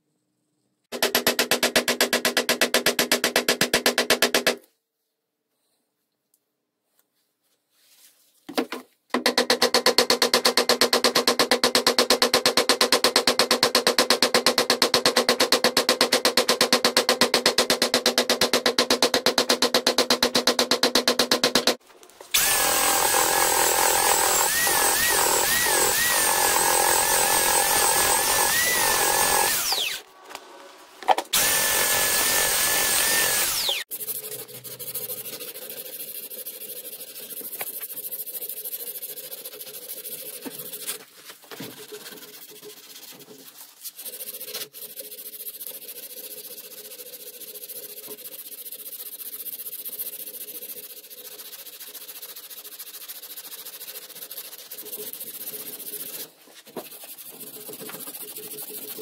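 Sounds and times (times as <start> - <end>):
hand sanding with abrasive strip: 10.2 - 30.1, 31.3 - 59.0
belt sander whining on wood: 22.3 - 30.1, 31.3 - 33.9.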